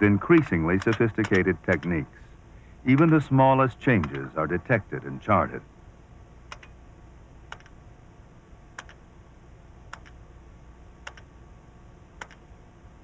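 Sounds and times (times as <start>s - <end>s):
low steady hum: 0.0s - 13.0s
faint electronic double clicks: 6.5s - 6.8s, 8.7s - 9.0s, 9.9s - 10.2s, 11.0s - 11.3s, 12.2s - 12.5s.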